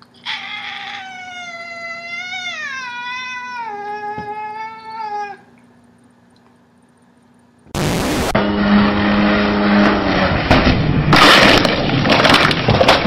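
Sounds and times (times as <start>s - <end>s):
cat meowing: 0.2s - 5.4s.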